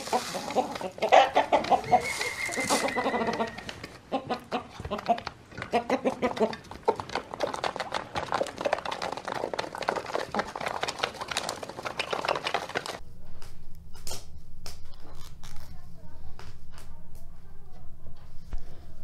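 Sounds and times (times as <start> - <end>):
chickens clucking: 0.0 - 13.0
chickens pecking metal trays: 0.0 - 13.0.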